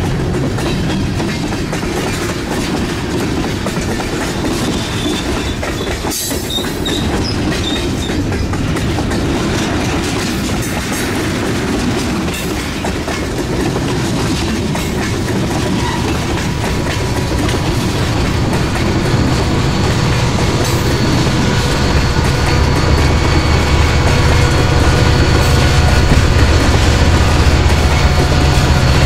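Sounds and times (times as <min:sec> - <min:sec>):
clicking over rail joints: 0:00.0 - 0:29.0
model train cars rumbling: 0:00.0 - 0:29.0
low hum: 0:14.8 - 0:29.0.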